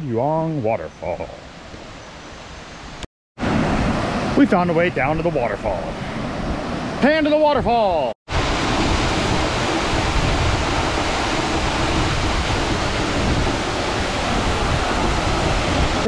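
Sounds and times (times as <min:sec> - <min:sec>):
waterfall rushing: 0:08.3 - 0:16.0.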